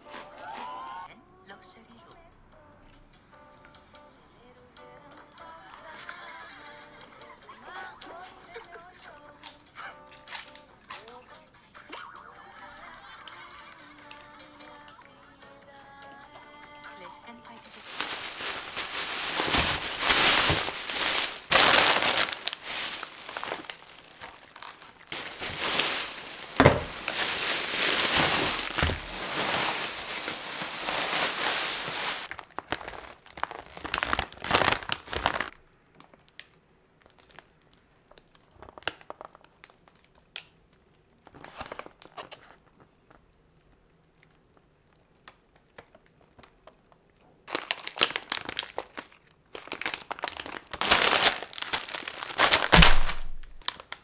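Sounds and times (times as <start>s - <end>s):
plastic bags crinkling: 17.6s - 42.8s, 47.4s - 54.0s
light clicks of packages: 17.7s - 54.0s.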